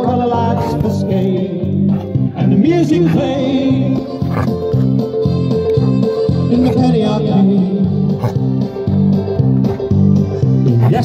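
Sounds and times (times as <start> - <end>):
guitar chords: 0.0 - 10.8
dog whining: 0.5 - 0.9, 4.0 - 6.9, 8.1 - 8.6
dog yipping: 5.7 - 6.9, 8.2 - 8.4.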